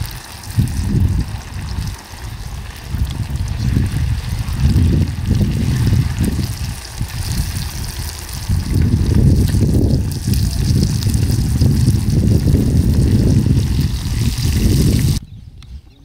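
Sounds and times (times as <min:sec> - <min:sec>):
food sizzling in oil: 0:00.0 - 0:15.2.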